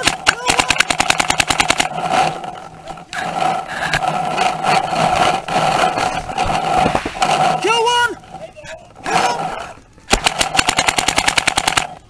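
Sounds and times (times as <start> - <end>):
paintball gun rapid firing: 0.0 - 2.4, 10.1 - 12.0
scraping and rustling: 1.8 - 10.1.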